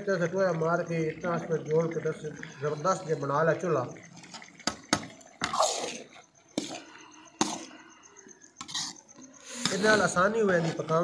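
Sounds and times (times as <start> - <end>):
spatula scraping a pan: 8.6 - 11.0.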